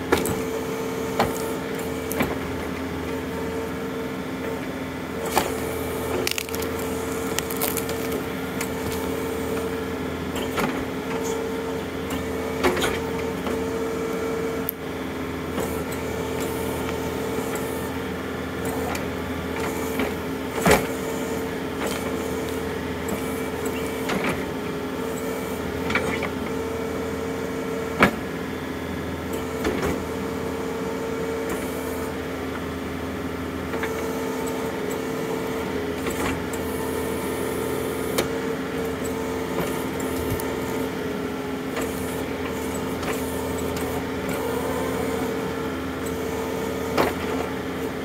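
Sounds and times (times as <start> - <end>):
tractor diesel engine running: 0.0 - 48.0
wood cracking and splintering: 5.4 - 9.2.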